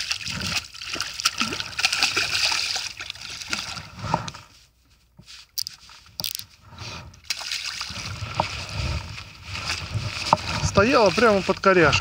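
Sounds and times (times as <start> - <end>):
fish thrashing and splashing water: 0.0 - 4.1, 7.2 - 12.0.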